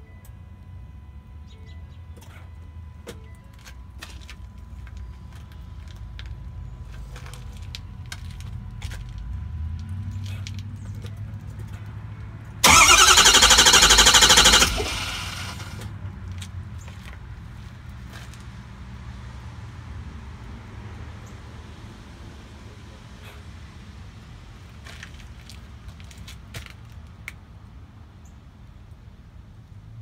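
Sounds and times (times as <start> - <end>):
starter cranking diesel engine: 12.6 - 15.9.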